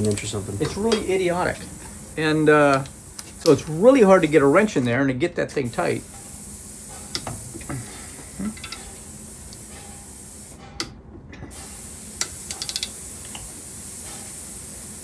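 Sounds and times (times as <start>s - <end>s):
ratchet wrench clicking: 0.0s - 4.6s, 8.5s - 10.6s, 11.5s - 15.0s
steady hiss: 0.0s - 4.9s, 5.6s - 10.7s, 11.5s - 15.0s.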